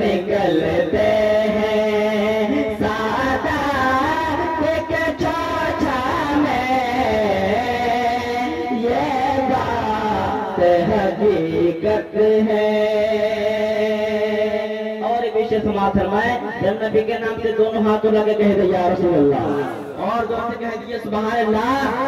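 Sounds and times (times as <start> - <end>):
men singing through pa: 0.0 - 15.0.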